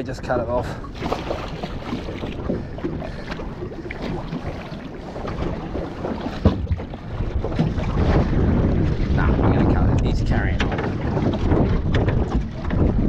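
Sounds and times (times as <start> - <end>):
water moving against boat: 0.0 - 13.0
wind on microphone: 0.8 - 13.0.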